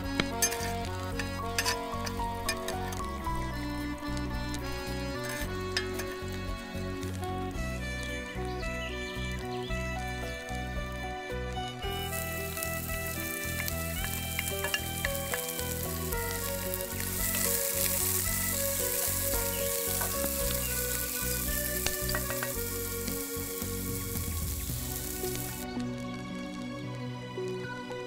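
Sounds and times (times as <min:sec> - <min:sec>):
onions sizzling in hot oil: 0:11.8 - 0:25.6.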